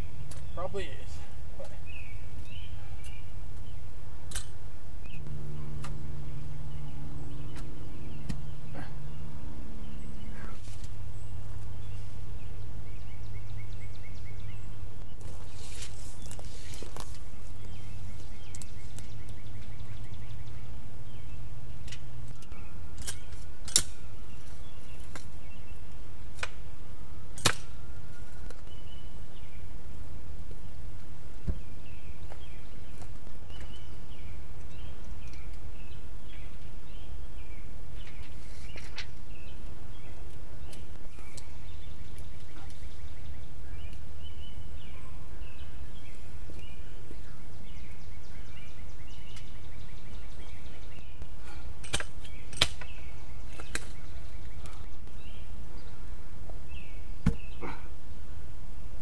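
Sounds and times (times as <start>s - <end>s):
birds chirping: 0.0s - 59.0s
sharp knocks on wooden post: 57.2s - 57.5s.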